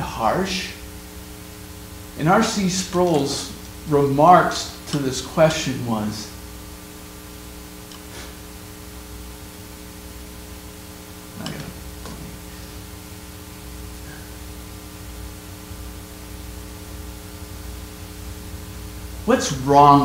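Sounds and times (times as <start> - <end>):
background hiss: 0.0 - 20.0
electrical mains hum: 0.0 - 20.0
man breathing: 14.0 - 14.4.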